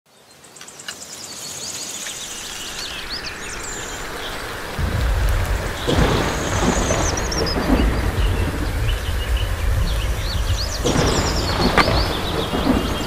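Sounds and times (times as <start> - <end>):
birds chirping: 0.1 - 13.0
steady rain: 0.1 - 13.0
thunder rumble: 2.4 - 13.0
thunder crash: 3.5 - 13.0.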